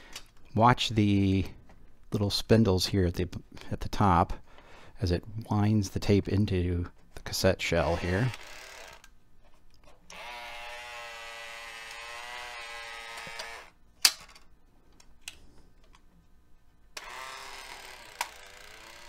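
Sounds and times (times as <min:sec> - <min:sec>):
small motor whirring whine: 0:10.1 - 0:13.8, 0:17.0 - 0:19.0.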